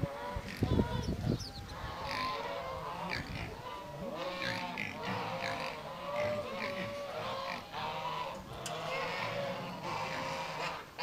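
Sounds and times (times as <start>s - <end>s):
farm animals calling: 0.0s - 11.0s.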